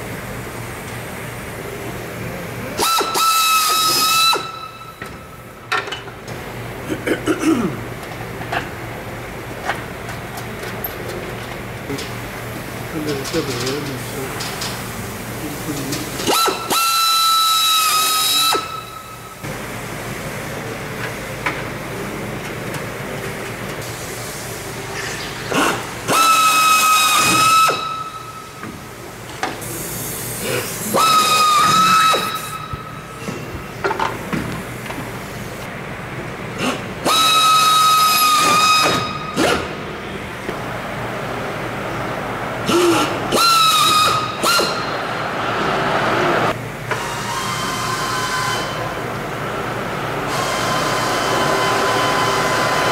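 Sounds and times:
pneumatic drill whine: 2.8s - 5.2s, 16.2s - 19.2s, 25.0s - 28.5s, 30.4s - 33.5s, 36.6s - 39.8s, 42.7s - 45.0s, 46.9s - 49.0s, 50.3s - 52.9s.

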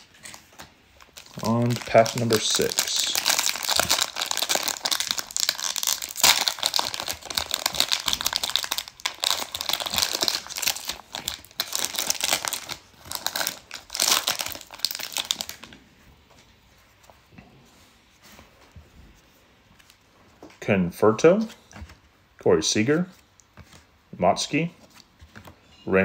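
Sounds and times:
plastic wrapper crinkling and tearing: 0.0s - 15.8s.

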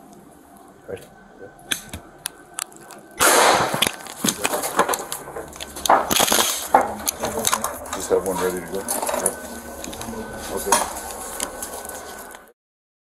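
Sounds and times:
gunshot blast with hissing tail: 3.2s - 3.9s
knocks and clatter: 3.2s - 12.4s.

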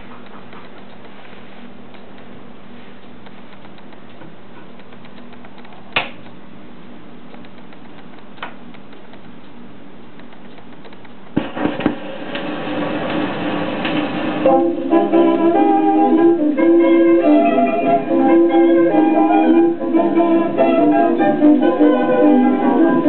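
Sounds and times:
stylus thumps on record: 0.0s - 1.2s, 3.1s - 6.4s, 7.2s - 14.5s
phonograph hum and hiss: 0.0s - 23.0s
record surface crackle: 0.0s - 23.0s
sharp click: 3.0s - 6.4s, 7.3s - 12.4s
music from record: 11.4s - 23.0s.

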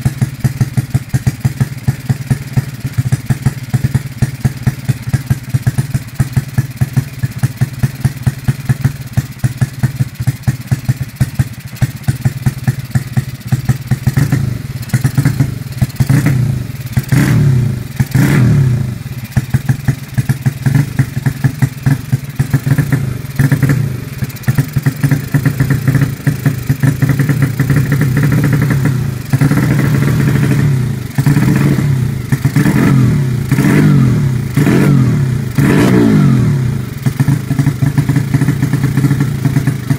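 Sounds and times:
motorcycle engine idling and revving: 0.0s - 39.9s.

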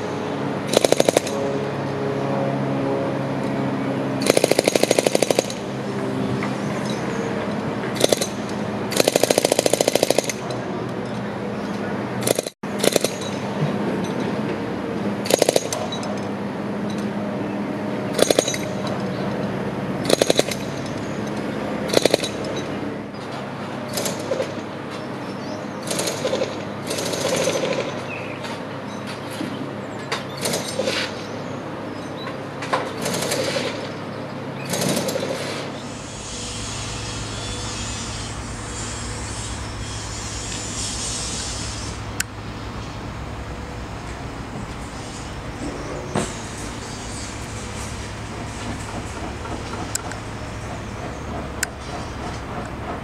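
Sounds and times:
jackhammer breaking concrete: 4.2s - 5.6s, 8.0s - 10.4s.

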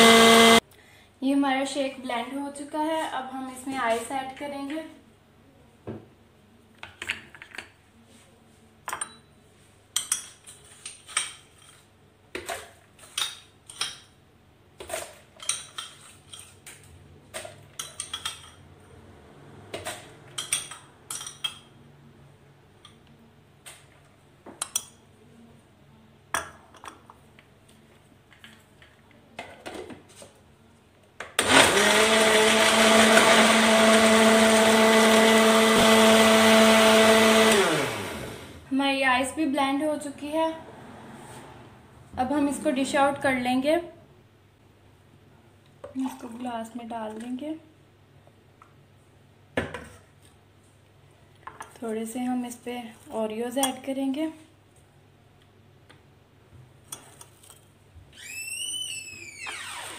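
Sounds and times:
blender motor running: 0.0s - 0.6s, 31.4s - 38.6s.

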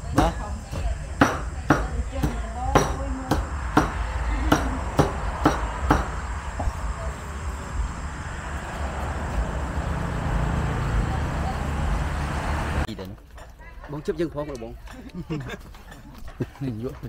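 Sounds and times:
cleaver chopping on a board: 0.1s - 6.2s.

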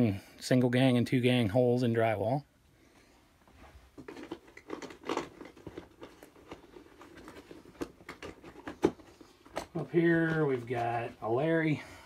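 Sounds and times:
tools rustling in a bag: 3.6s - 11.2s.

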